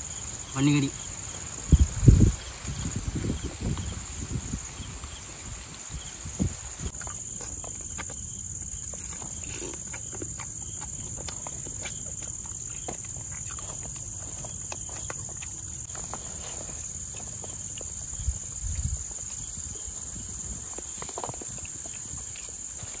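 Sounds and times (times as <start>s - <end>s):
crickets chirping: 0.0s - 23.0s.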